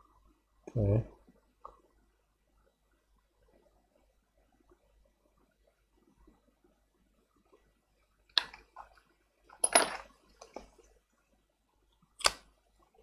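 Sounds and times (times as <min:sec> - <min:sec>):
tools clattering: 0:09.6 - 0:10.1.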